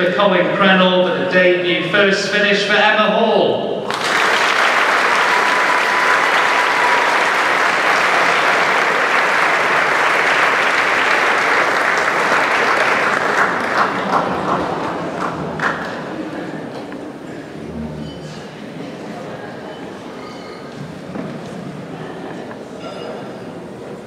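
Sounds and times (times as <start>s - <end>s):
audience applauding: 3.9s - 16.6s.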